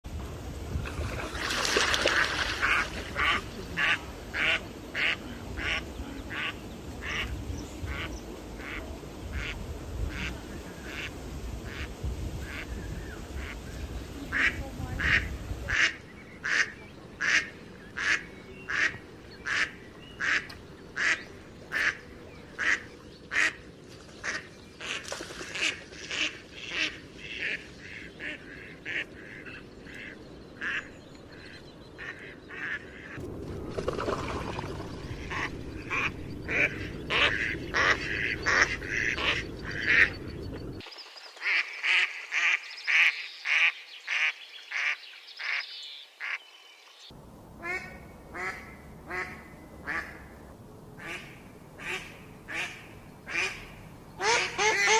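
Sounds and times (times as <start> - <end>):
ducks quacking: 2.0 - 12.7, 14.2 - 23.6, 24.2 - 31.0, 32.0 - 33.2, 35.0 - 40.8
low rushing noise: 26.4 - 41.2.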